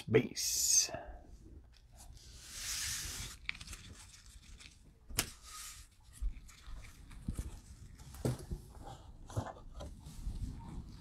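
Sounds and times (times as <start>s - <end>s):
plastic wrapper crinkly rustle: 3.0s - 8.2s.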